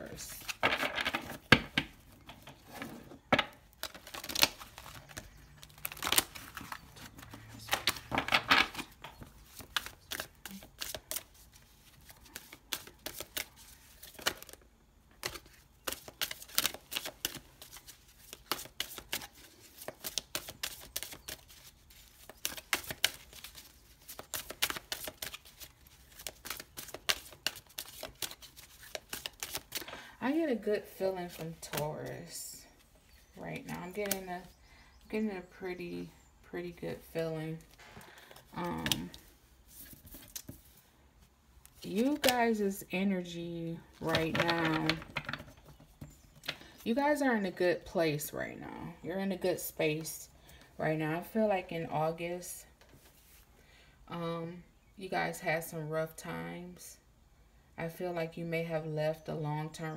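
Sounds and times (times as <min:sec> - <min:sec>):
cards being shuffled: 0:00.2 - 0:02.8, 0:03.5 - 0:30.1, 0:30.8 - 0:34.6, 0:37.0 - 0:40.8, 0:41.6 - 0:46.8.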